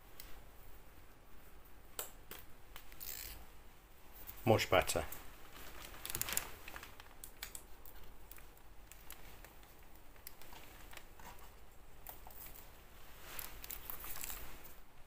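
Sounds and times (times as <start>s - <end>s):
light clicks and rustles: 5.0s - 15.0s.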